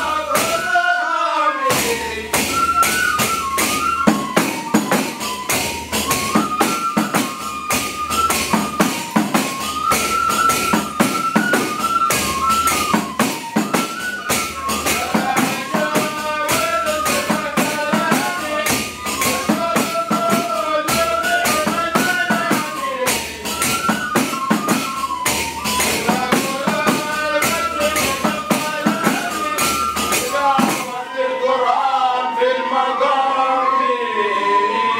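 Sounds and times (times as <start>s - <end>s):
frame drums: 0.0s - 0.8s, 1.6s - 31.0s
group of men chanting: 0.0s - 2.5s, 14.9s - 23.6s, 25.8s - 34.9s.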